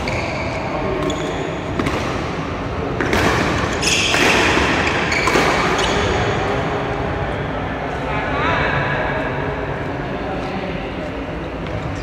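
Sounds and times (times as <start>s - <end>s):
rackets striking shuttlecock: 1.0s - 6.2s.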